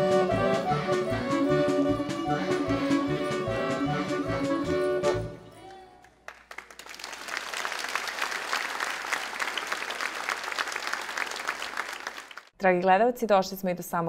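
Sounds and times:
audience applause: 6.2 - 12.5.

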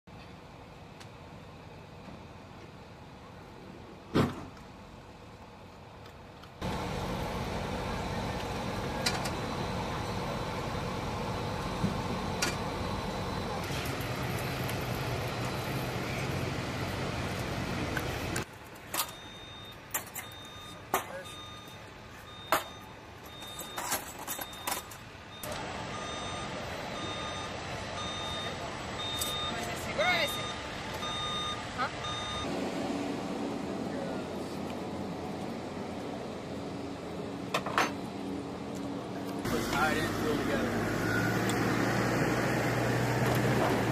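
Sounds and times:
engine humming steadily: 0.1 - 43.9
steady background noise: 0.1 - 43.9
electronic warning beeps: 19.0 - 32.5.

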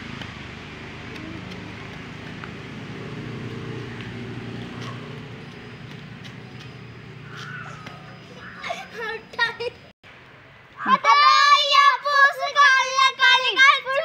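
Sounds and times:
low engine drone: 0.0 - 9.4.

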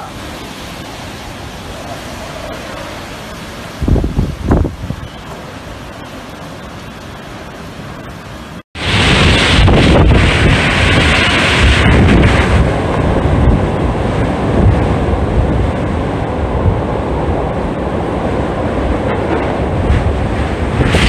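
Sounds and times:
wind gust hiss: 0.0 - 21.0
strong wind buffeting microphone: 1.4 - 5.2, 8.8 - 21.0.

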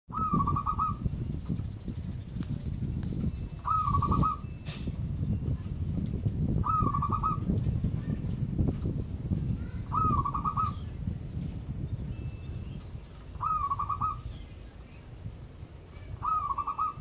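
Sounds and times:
dove cooing: 0.1 - 1.0, 3.6 - 4.5, 6.6 - 7.5, 9.8 - 10.8, 13.3 - 14.3, 16.1 - 17.0.

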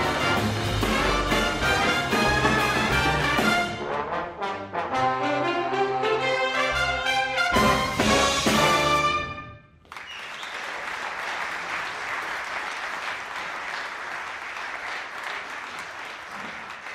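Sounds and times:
big band playing swing: 0.0 - 9.6
audience applauding: 9.8 - 16.9.

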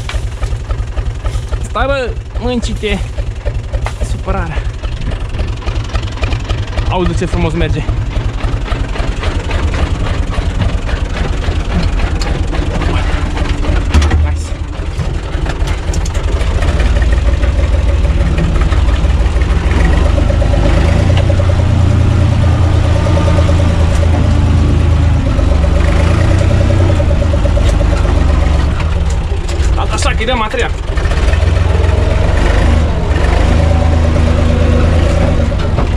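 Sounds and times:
clunk: 0.0 - 1.6, 3.0 - 4.3, 8.5 - 20.4
tractor diesel engine running: 0.0 - 35.9.

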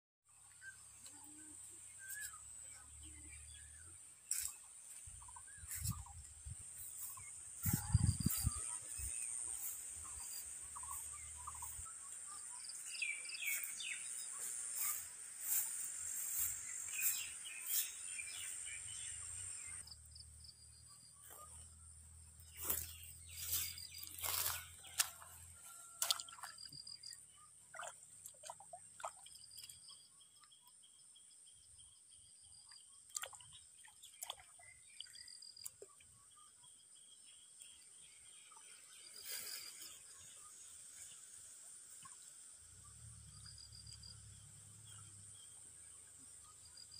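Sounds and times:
outdoor background noise: 0.2 - 46.9
birds chirping: 0.4 - 28.6.

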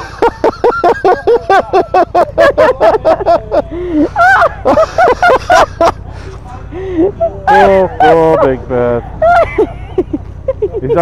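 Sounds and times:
person laughing hard: 0.0 - 6.0, 9.2 - 11.0.

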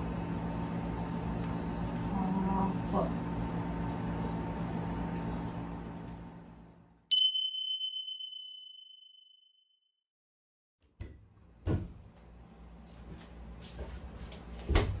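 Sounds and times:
faint kitchen room sound: 0.0 - 8.4, 10.8 - 15.0
bright chime: 7.1 - 9.5.

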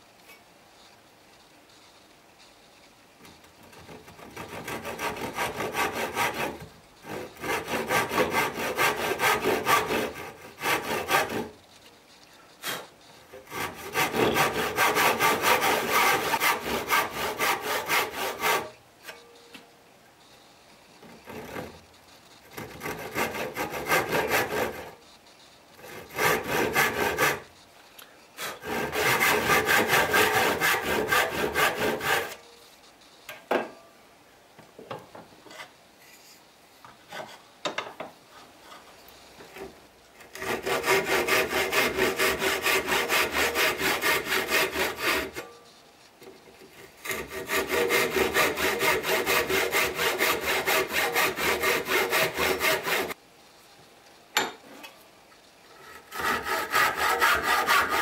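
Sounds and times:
hand saw cutting wood: 3.7 - 11.6, 12.6 - 18.8, 21.2 - 21.8, 22.4 - 25.0, 25.8 - 27.5, 28.4 - 32.4, 40.2 - 45.5, 46.6 - 53.2, 55.8 - 58.0.

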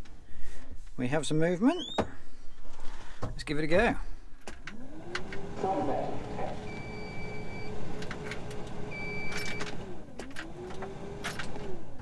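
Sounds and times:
dashboard warning beeps: 1.7 - 2.0, 6.5 - 7.8, 8.9 - 9.8.

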